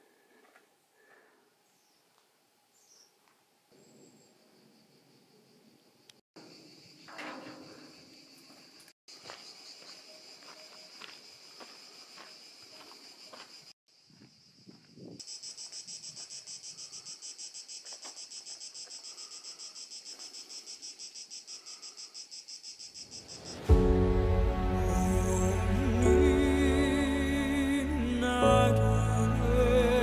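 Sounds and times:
music: 23.7s - 30.0s.

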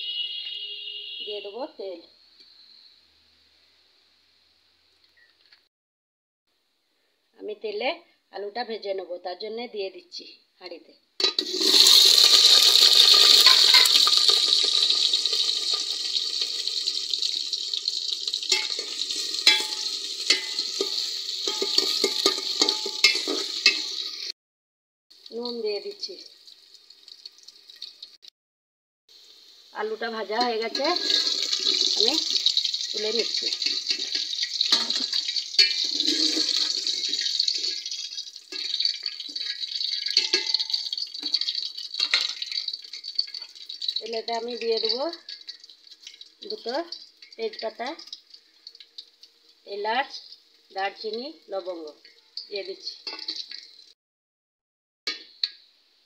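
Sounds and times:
potatoes sizzling in hot oil: 11.2s - 24.3s, 25.2s - 28.2s, 29.1s - 54.0s
steel spatula scraping pot: 13.3s - 16.6s, 18.5s - 24.3s, 30.4s - 37.9s, 38.5s - 44.0s.

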